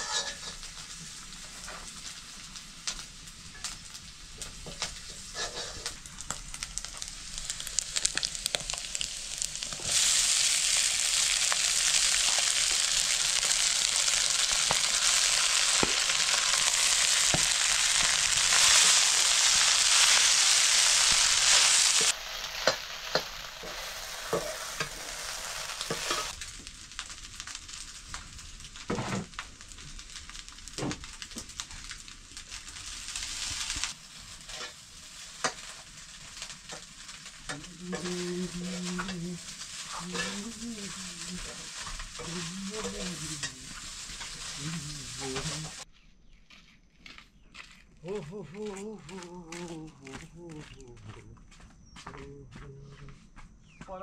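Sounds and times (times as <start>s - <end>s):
utensil scraping a pan: 0.0s - 0.8s, 4.7s - 6.0s, 13.4s - 26.4s, 39.8s - 45.8s
loud sizzle: 0.0s - 45.9s.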